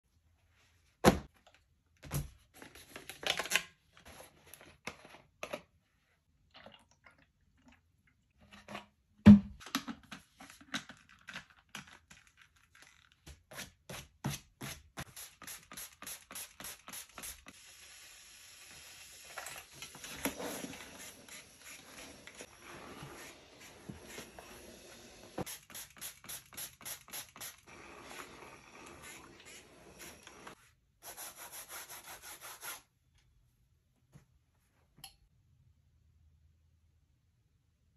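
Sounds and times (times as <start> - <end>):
spray bottle squirting: 15.1 - 17.6, 25.4 - 30.6
steam iron hissing: 15.8 - 30.6.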